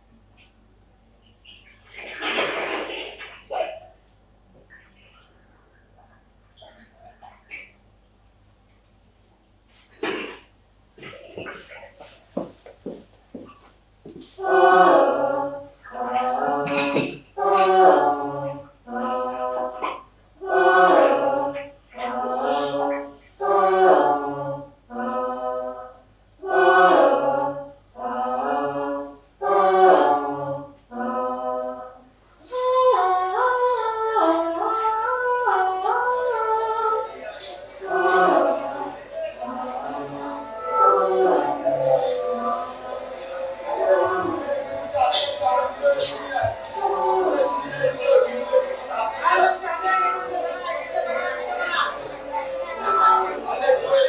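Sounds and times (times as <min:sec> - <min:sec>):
person singing unaccompanied: 0:14.1 - 0:54.0.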